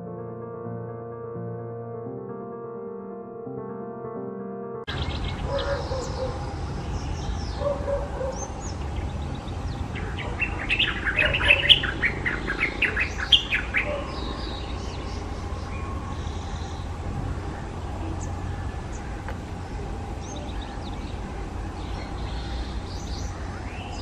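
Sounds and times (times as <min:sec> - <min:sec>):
faint bird calls: 0:04.9 - 0:09.0, 0:09.9 - 0:24.0
bulbul singing: 0:04.9 - 0:24.0.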